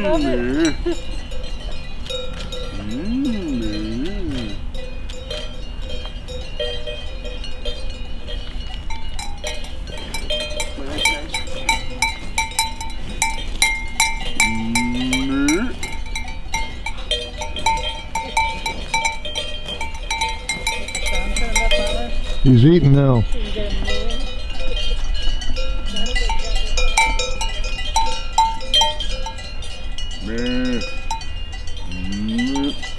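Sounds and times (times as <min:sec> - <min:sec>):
cowbells clanking: 0:00.0 - 0:32.9
rising call: 0:02.2 - 0:05.6.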